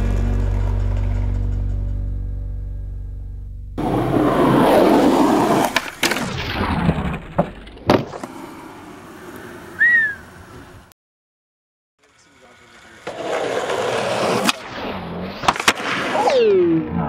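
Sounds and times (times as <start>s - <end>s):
skateboard wheels rolling on concrete: 0.0s - 1.9s, 3.8s - 10.9s, 12.0s - 17.0s
skateboard trucks grinding: 3.8s - 10.9s, 12.0s - 17.0s
skateboard clacking and landing: 5.4s - 9.4s, 15.4s - 16.6s.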